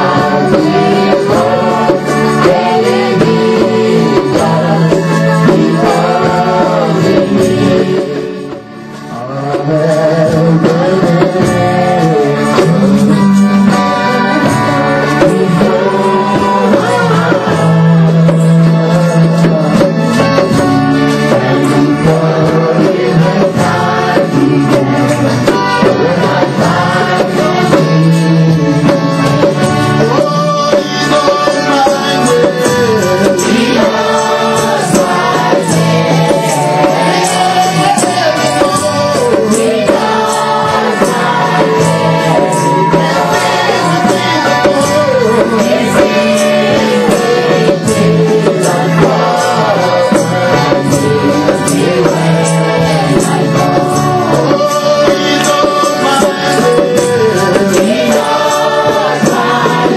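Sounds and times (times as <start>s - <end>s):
instrumental accompaniment: 0.0s - 59.9s
voices singing worship song: 0.0s - 59.9s.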